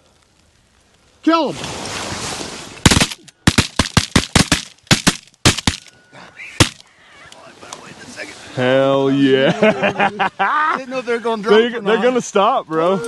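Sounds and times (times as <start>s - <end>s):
shotgun blasts: 2.8s - 5.9s.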